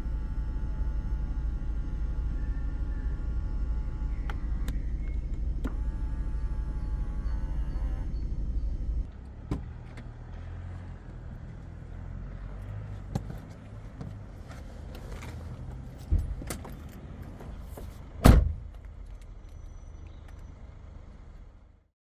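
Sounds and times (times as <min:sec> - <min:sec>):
low hum: 0:00.0 - 0:17.6
heavy car door thud: 0:18.2 - 0:18.7.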